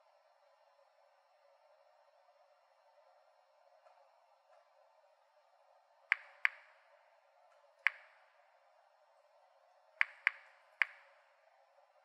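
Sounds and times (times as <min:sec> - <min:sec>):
geiger counter clicks: 0:06.1 - 0:06.9, 0:07.9 - 0:08.4, 0:10.0 - 0:11.3.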